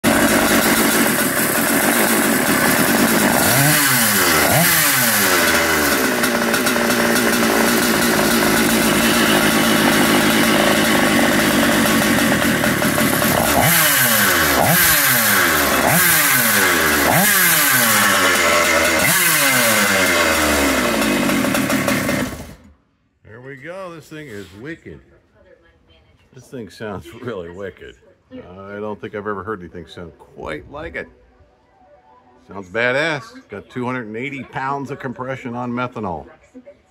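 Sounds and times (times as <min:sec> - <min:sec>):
kart engine revving: 0:00.0 - 0:22.7.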